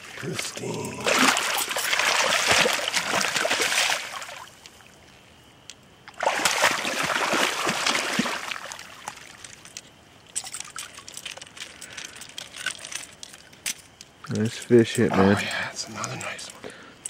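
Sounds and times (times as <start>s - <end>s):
fish splashing in water: 0.5s - 4.6s, 6.1s - 9.6s.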